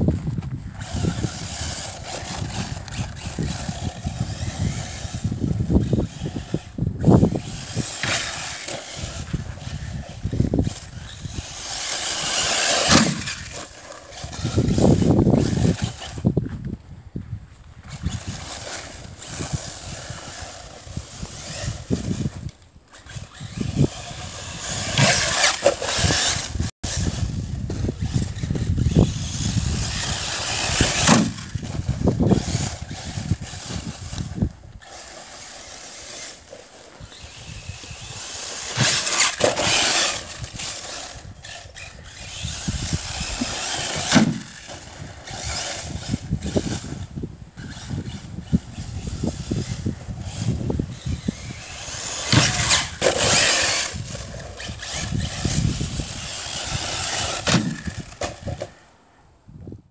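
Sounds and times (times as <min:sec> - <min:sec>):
electric motor whining: 0:00.0 - 0:16.8, 0:17.8 - 0:58.8
tyres tearing through dirt: 0:00.0 - 0:58.9.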